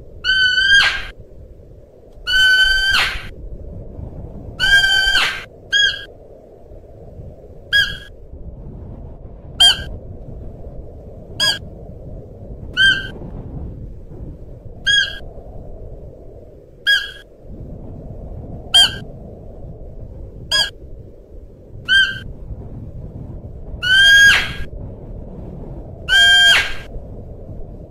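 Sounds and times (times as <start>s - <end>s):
low background rumble: 0.0s - 27.9s
deer calling: 0.2s - 1.1s, 2.2s - 3.3s.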